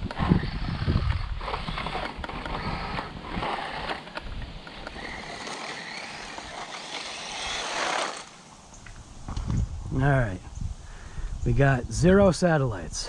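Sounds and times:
small electric motor whining: 0.0 - 8.5
tyres and chassis rattling: 0.0 - 8.5.

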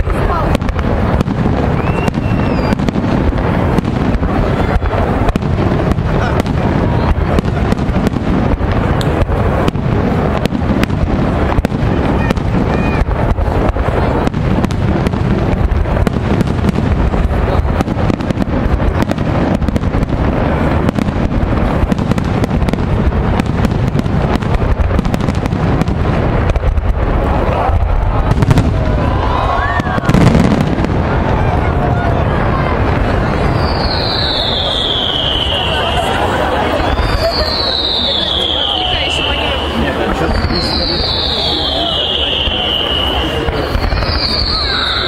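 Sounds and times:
heavy low rumble: 2.9 - 33.6.

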